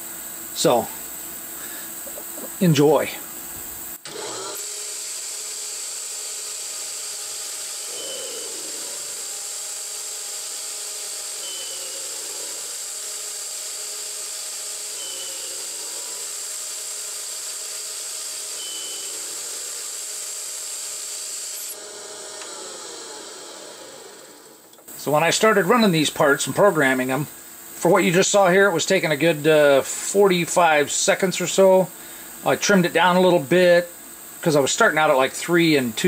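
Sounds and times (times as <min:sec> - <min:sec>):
lathe cutting metal whine: 0:04.1 - 0:30.2.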